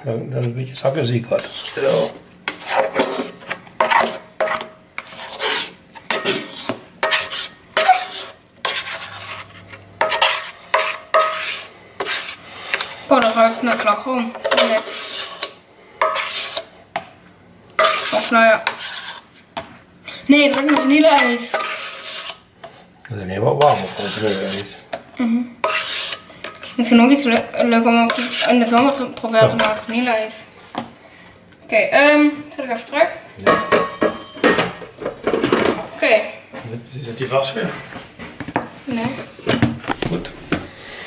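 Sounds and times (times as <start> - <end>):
spatula scraping metal bowl: 1.3 - 16.7, 17.8 - 19.3, 20.3 - 22.5, 23.5 - 24.8, 25.6 - 30.4.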